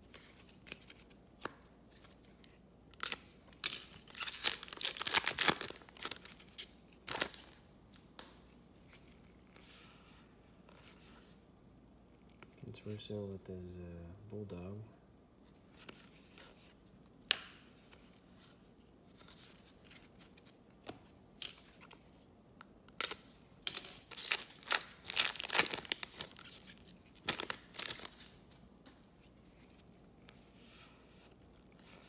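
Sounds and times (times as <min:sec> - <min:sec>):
foil wrapper tearing and crinkling: 0:03.0 - 0:06.3, 0:22.9 - 0:28.4.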